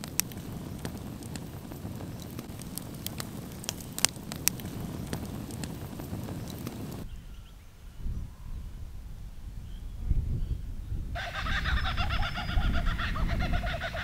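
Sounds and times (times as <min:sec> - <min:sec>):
campfire crackling and popping: 0:00.0 - 0:07.1.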